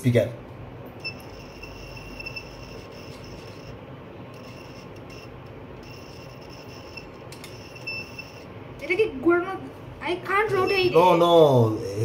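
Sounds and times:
high electronic tone: 1.0 - 8.5.

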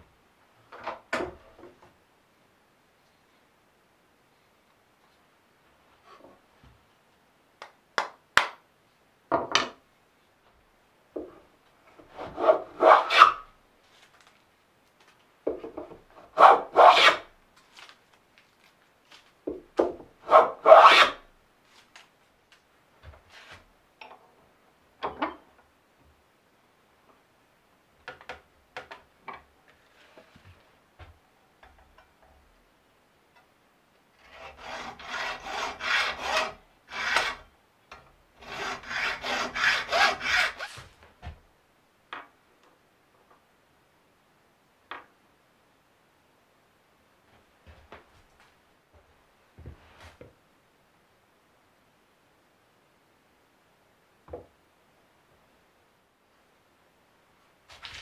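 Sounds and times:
wooden plane shaving a board: 16.4 - 17.2, 20.3 - 21.2, 34.2 - 37.4, 38.4 - 40.8
hacksaw cutting steel screw: 34.3 - 37.4, 38.4 - 40.8.

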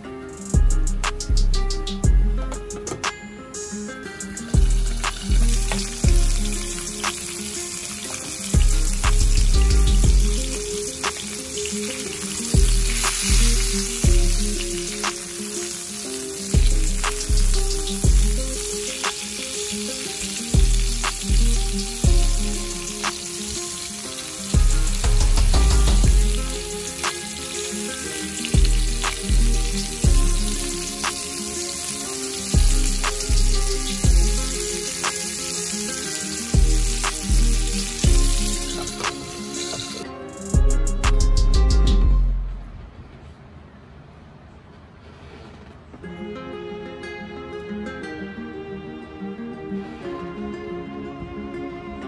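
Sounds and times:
background music with deep bass: 0.1 - 42.7
fish sizzling in oil in a frying pan: 4.4 - 40.0.

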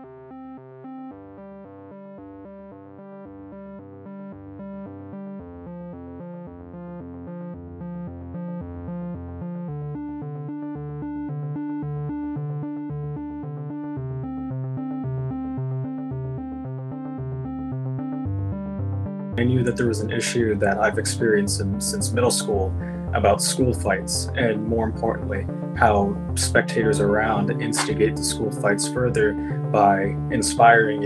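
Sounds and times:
synthesizer music with bass line: 0.0 - 31.0.

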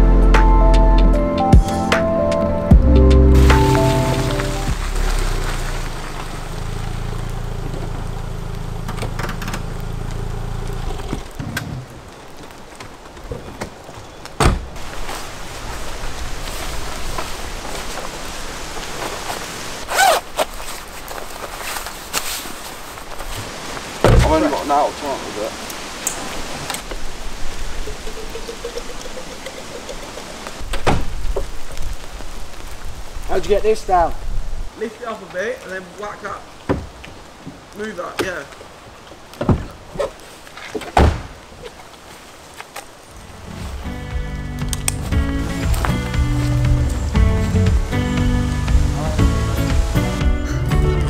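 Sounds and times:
steady rain-like hiss: 1.3 - 51.0
car engine idling: 2.7 - 11.4
car door slam: 14.4 - 14.7, 24.0 - 24.5, 40.9 - 41.4
loud thump: 24.0 - 24.6, 41.0 - 41.4.

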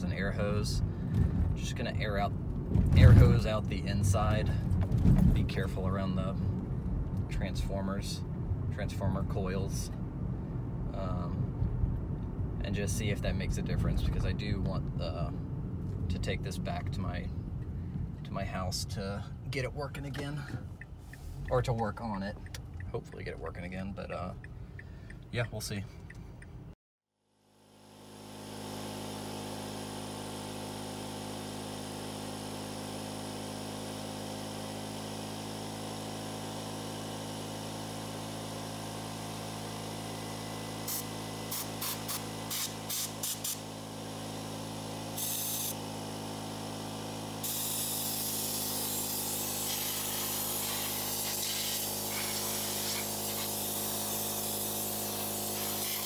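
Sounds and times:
compressor machine hum: 27.4 - 56.0
compressed air blasting from blow gun: 28.0 - 56.0.

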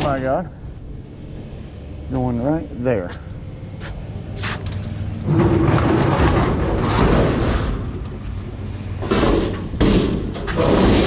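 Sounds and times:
sharp metal knocks: 9.0 - 11.0.

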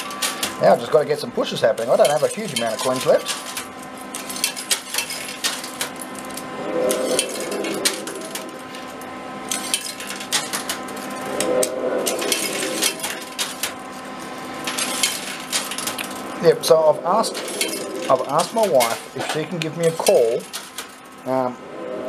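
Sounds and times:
machine hum: 0.0 - 22.0.

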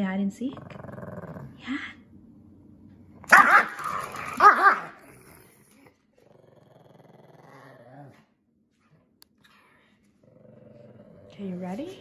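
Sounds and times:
dog growling: 0.4 - 1.8, 3.4 - 8.4, 10.2 - 11.8
small dog barking: 3.3 - 5.0.

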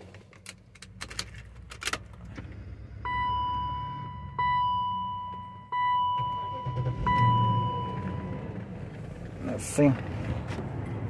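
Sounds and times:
dashboard warning chime: 3.1 - 8.5.

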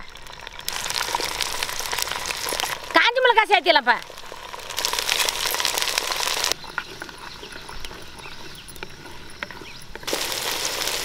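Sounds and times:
food sizzling in hot oil: 0.0 - 6.6, 10.0 - 11.0
faint chirping: 4.9 - 10.1.

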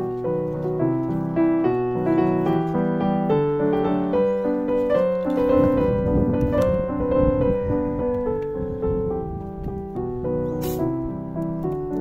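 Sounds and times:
gentle piano melody: 0.0 - 12.0.

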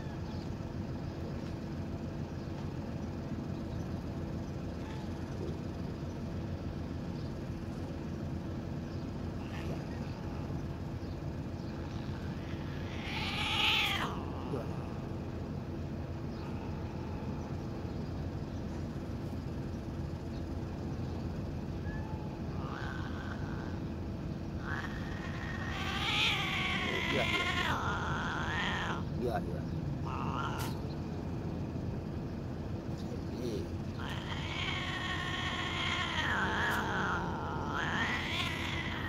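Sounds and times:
steady low hum: 0.0 - 39.0
cat meowing: 11.8 - 14.9, 24.6 - 29.1, 30.0 - 30.8, 34.0 - 39.0.

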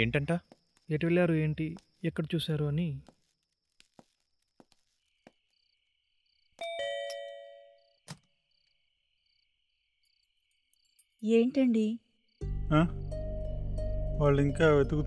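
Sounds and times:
crickets chirping: 0.0 - 15.0
faint footsteps: 0.3 - 2.0, 2.9 - 5.5
doorbell chiming: 6.6 - 7.9.

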